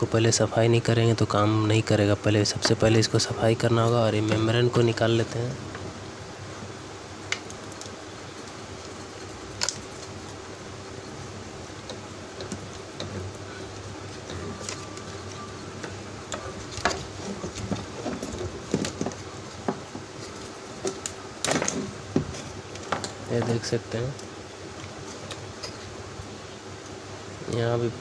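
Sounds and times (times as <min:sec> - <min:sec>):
steady background hum: 0:00.0 - 0:28.0.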